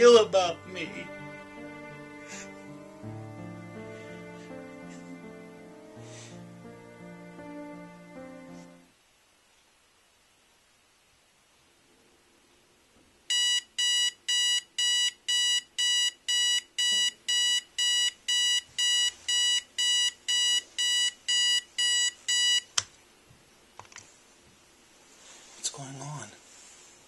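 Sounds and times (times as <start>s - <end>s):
alarm clock beeping: 13.3s - 22.7s.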